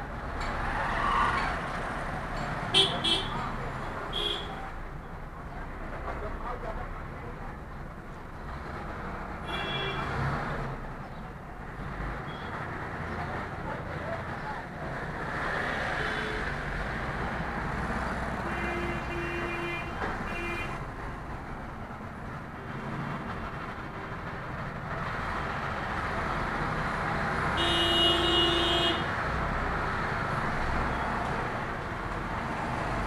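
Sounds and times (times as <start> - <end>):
engine and traffic rumble: 0.0 - 33.0
loud horn blast: 27.6 - 29.1
vehicle horn toots: 27.6 - 29.1.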